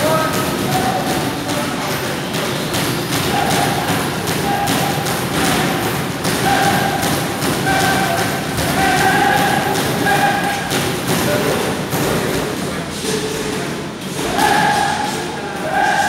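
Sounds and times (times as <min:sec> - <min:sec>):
short shouted calls: 0:03.2 - 0:10.8, 0:14.2 - 0:16.0.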